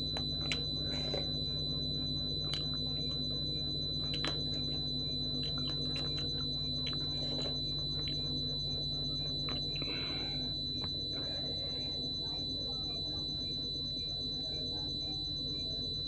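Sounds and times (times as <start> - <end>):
wet chewing and smacking: 0.0 - 3.2, 3.8 - 10.1
low hum: 0.0 - 16.0
steady high-pitched whine: 0.0 - 16.0.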